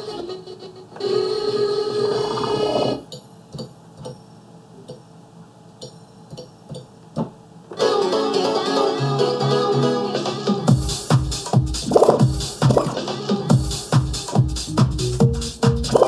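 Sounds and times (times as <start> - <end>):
music from turntable: 7.8 - 16.0.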